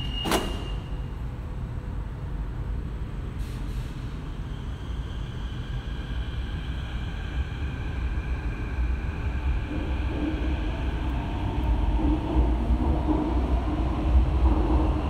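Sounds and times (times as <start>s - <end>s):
train low rumble: 0.0s - 15.0s.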